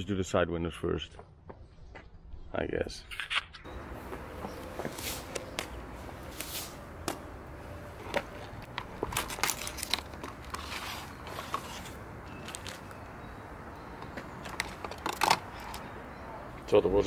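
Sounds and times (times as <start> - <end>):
gloves rustling: 3.9 - 13.2
film crinkling: 8.1 - 13.0
cardboard box opening: 9.1 - 12.8.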